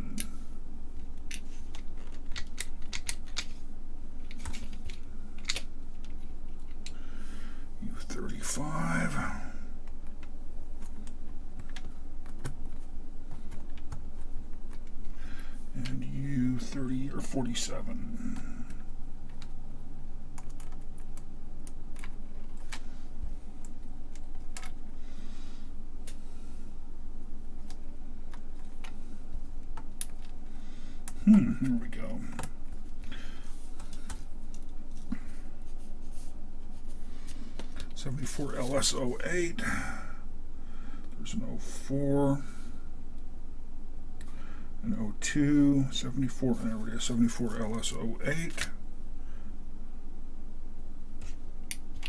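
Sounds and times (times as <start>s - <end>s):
low background hum: 0.0s - 52.0s
small chips clicking and tapping: 1.2s - 3.5s.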